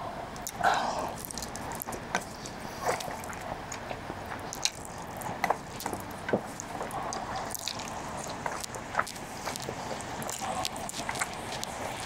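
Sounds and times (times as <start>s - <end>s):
person chewing noodles: 0.4s - 12.0s.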